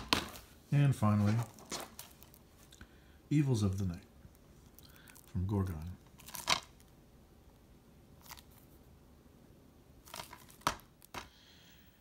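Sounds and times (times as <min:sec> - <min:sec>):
plastic wrap crackling: 0:00.0 - 0:02.8, 0:04.2 - 0:07.0, 0:10.0 - 0:11.2.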